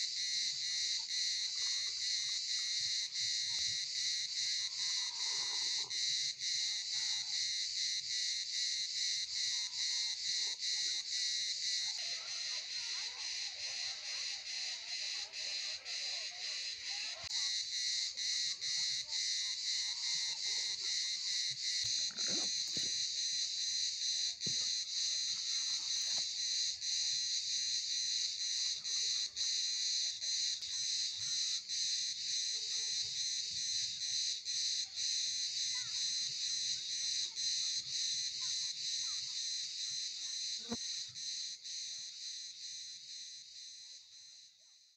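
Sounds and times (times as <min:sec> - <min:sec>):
cicadas buzzing: 0:00.0 - 0:06.7, 0:21.0 - 0:43.9.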